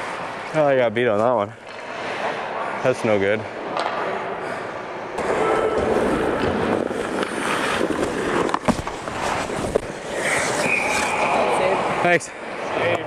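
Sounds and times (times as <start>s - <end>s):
sticks and puck clattering: 0.1s - 4.2s, 5.2s - 12.0s
skates scraping on ice: 4.7s - 13.0s
referee whistle: 10.5s - 11.6s.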